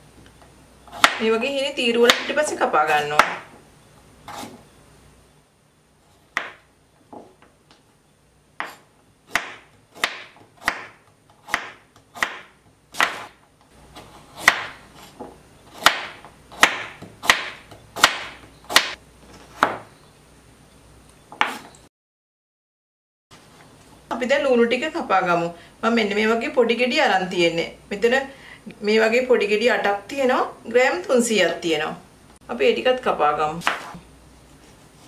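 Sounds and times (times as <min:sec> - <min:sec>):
knife chopping on wooden board: 0:00.9 - 0:01.2, 0:06.3 - 0:07.3, 0:08.6 - 0:13.4, 0:14.0 - 0:19.8, 0:21.4 - 0:21.7, 0:33.6 - 0:34.0.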